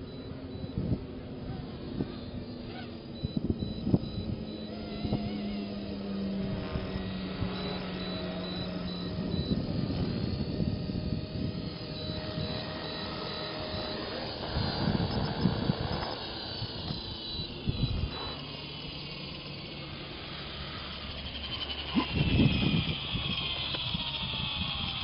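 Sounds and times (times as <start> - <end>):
rc helicopter motor whine: 0.0 - 25.0
rotor buzzing: 0.0 - 25.0
rushing air gusts: 9.2 - 24.7.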